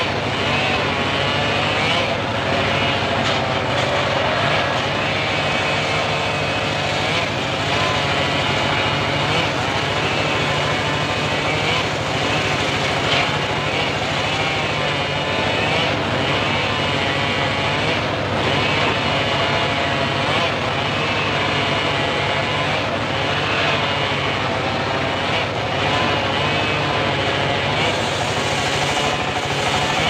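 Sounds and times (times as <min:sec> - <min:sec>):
circular saw cutting wood: 0:00.0 - 0:30.0.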